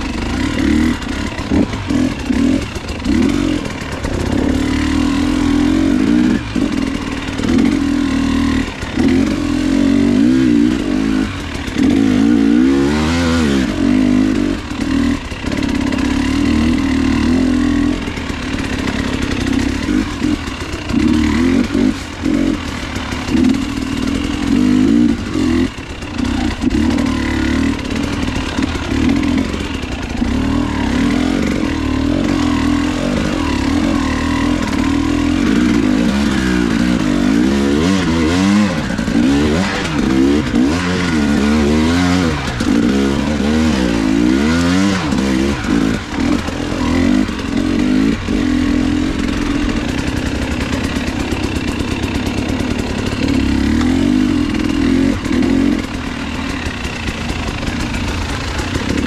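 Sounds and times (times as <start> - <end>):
rattling clatter: 0.0 - 8.0
motorcycle engine revving: 0.0 - 59.0.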